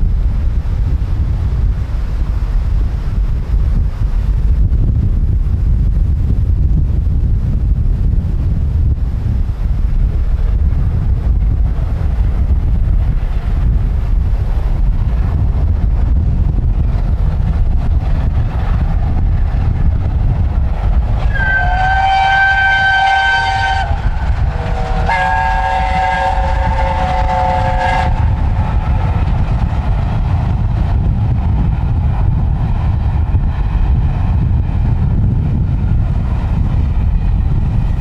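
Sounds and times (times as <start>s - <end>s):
wind buffeting microphone: 0.0s - 38.0s
steam locomotive whistle blasts: 21.2s - 28.2s.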